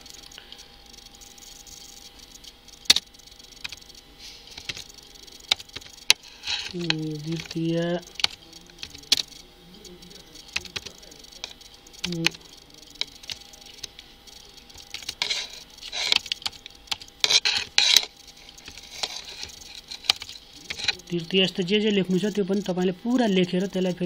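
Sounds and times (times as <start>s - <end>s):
computer keyboard typing: 0.0s - 24.0s.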